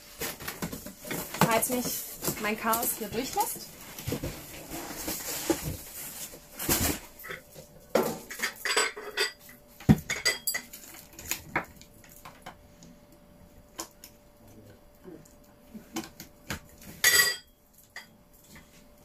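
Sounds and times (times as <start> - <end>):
ceramic and glass parts clinking: 8.3 - 9.4, 10.1 - 10.8, 17.0 - 18.1.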